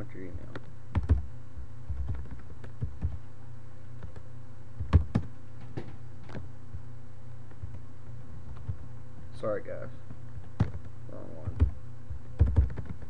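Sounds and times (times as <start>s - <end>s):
steady low hum: 0.0s - 13.0s
keyboard and mouse clicks: 0.5s - 1.2s, 1.9s - 3.2s, 4.0s - 4.2s, 10.4s - 10.9s, 11.6s - 13.0s.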